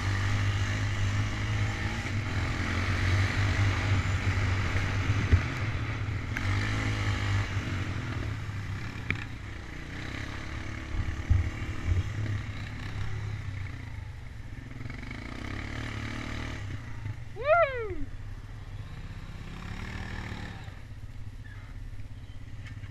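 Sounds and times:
atv engine running: 0.0s - 22.9s
short rising-and-falling cry: 17.4s - 18.1s.

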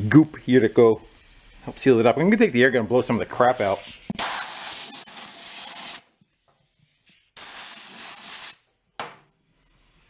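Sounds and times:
compressed air blow gun blasting: 4.2s - 6.1s, 7.4s - 8.6s.

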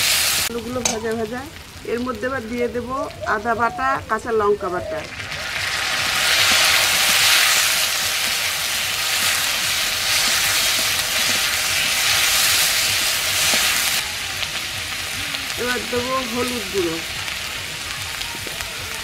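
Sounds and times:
paste sizzling in hot oil: 0.0s - 2.7s, 5.0s - 19.0s
metal spatula stirring in pan: 5.3s - 14.5s.

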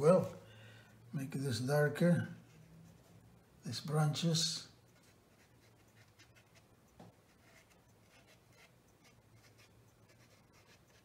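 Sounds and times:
paintbrush stroking paper: 7.3s - 11.0s.

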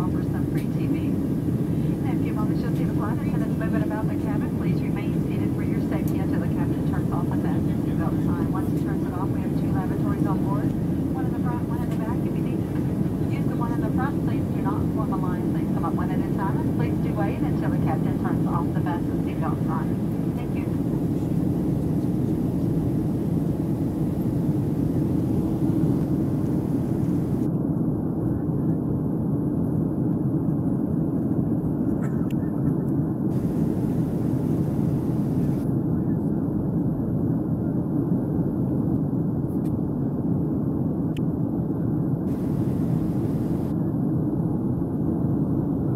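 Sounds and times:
air rushing along fuselage: 0.0s - 27.5s, 33.3s - 35.6s, 42.3s - 43.8s
jet engine drone in cabin: 0.0s - 45.9s.

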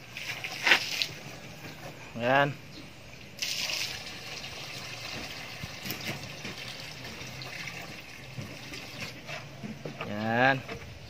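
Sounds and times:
water pouring onto cement powder: 3.4s - 9.0s.

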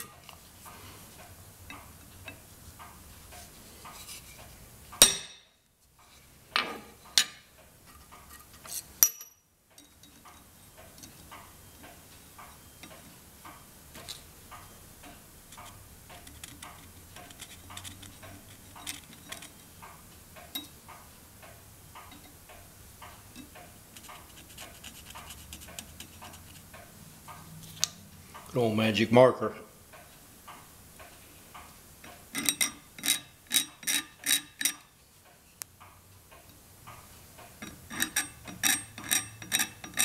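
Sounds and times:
center punch striking metal: 5.0s - 5.6s.

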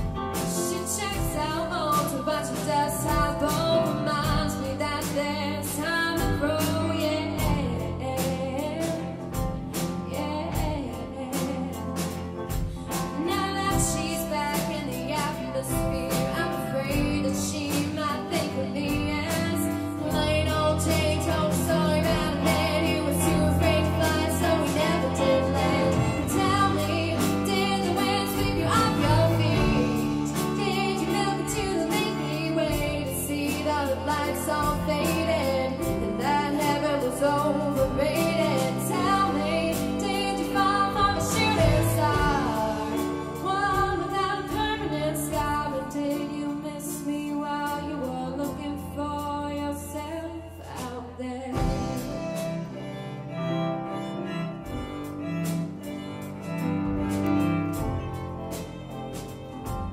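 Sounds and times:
drum kit beat: 0.0s - 47.8s, 51.6s - 59.9s
cello: 0.0s - 48.9s, 51.6s - 59.9s
keyboard: 0.0s - 50.6s
woman singing: 0.0s - 52.6s
electric guitars: 11.1s - 44.8s.

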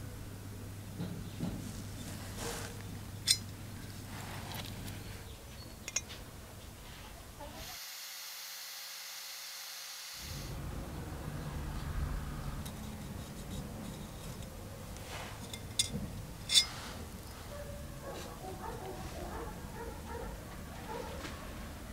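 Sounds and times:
handling of metal piece: 3.2s - 3.6s, 4.5s - 6.2s, 12.6s - 17.1s
metal grinding on sanding disc: 16.5s - 17.1s.

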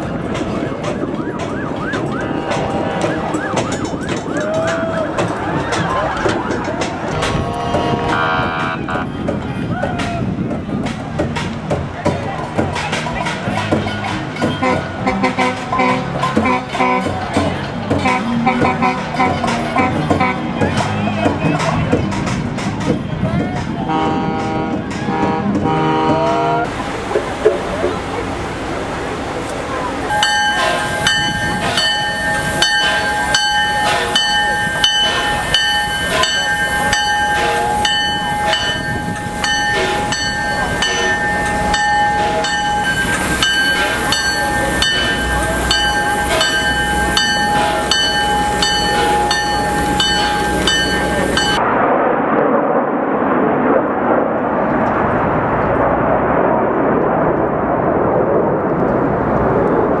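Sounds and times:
train rumble: 0.0s - 60.0s
jets flying over: 26.6s - 60.0s
steam locomotive bell ringing: 30.1s - 51.6s.

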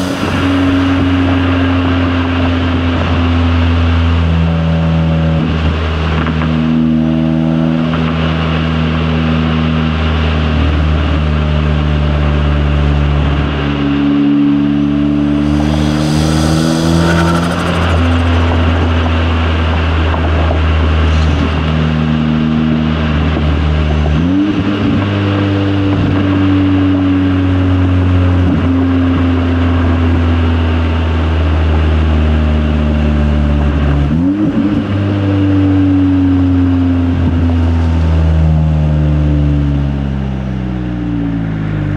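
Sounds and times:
turbocharged car engine accelerating: 0.0s - 41.9s
rush of hiss: 15.4s - 18.8s.

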